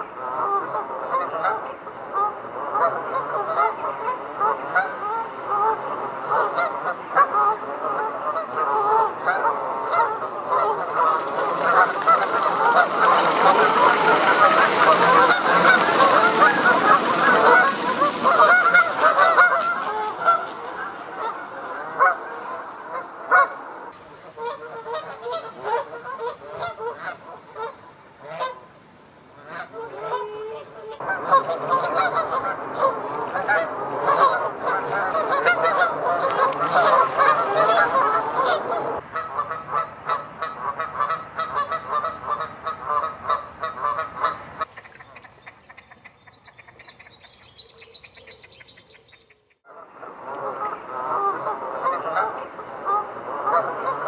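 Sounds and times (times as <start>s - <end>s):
geese honking: 0.0s - 54.0s.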